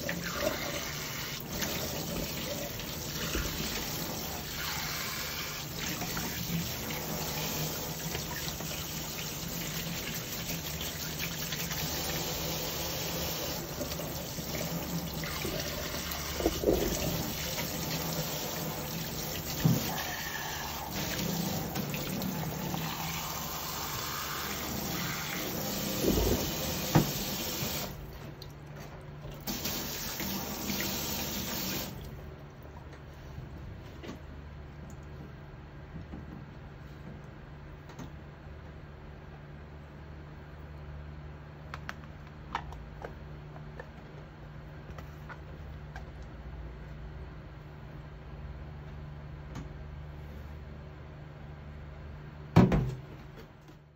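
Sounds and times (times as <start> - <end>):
cloth rinsed by hand: 0.0 - 32.2.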